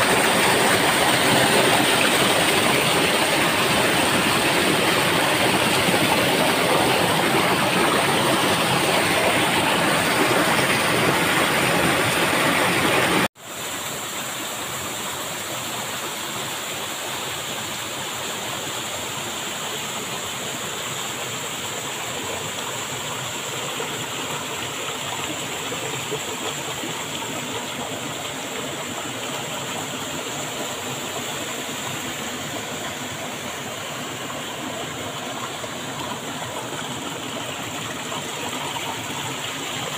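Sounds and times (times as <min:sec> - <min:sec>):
waterfall rushing: 0:00.0 - 0:16.2
stream flowing over rocks: 0:00.0 - 0:39.9.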